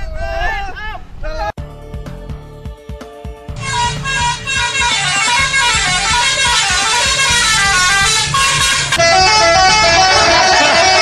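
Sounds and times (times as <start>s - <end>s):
steady beat: 1.6s - 11.0s
multi-tone horn melody: 3.6s - 11.0s.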